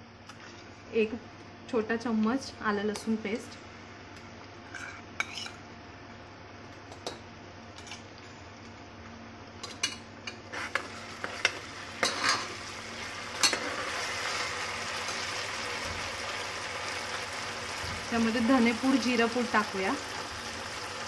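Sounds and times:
food frying in oil: 9.7 - 21.0.

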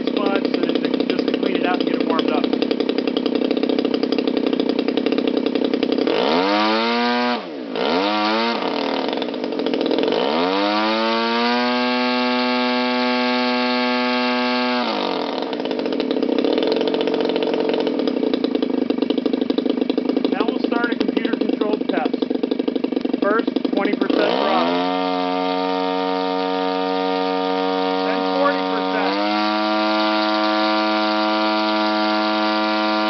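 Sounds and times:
model engine and propeller revving: 0.0 - 33.0.

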